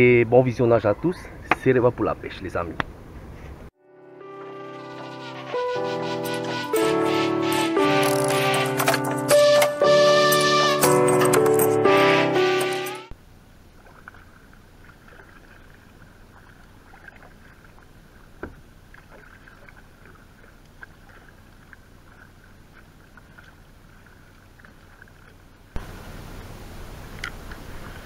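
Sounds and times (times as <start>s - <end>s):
water dripping and lapping: 13.6s - 26.0s
paddle knock: 16.4s - 21.3s.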